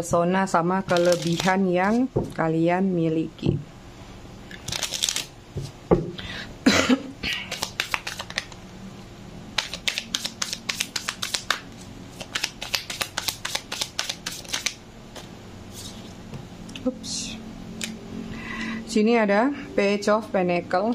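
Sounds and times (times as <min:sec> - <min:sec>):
cards being shuffled: 0:00.9 - 0:02.0, 0:04.6 - 0:05.7, 0:07.4 - 0:08.6, 0:09.6 - 0:16.2.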